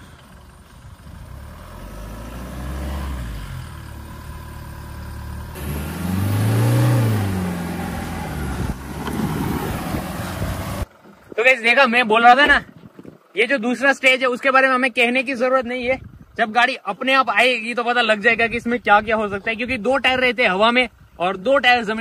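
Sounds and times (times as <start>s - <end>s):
suv engine revving: 0.0s - 10.9s.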